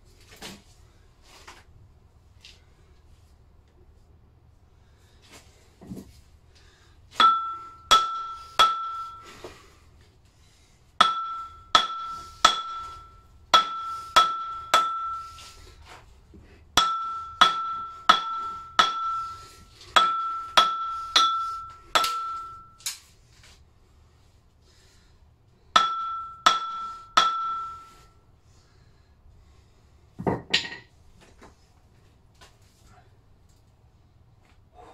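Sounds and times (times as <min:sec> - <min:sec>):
hammer striking steel: 0:07.2 - 0:09.4, 0:11.0 - 0:15.5, 0:16.8 - 0:22.9, 0:25.7 - 0:28.1.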